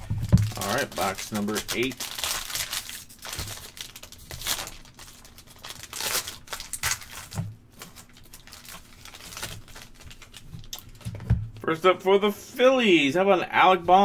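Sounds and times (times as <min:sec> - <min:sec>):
foil wrapper crinkling and tearing: 0:00.0 - 0:11.1.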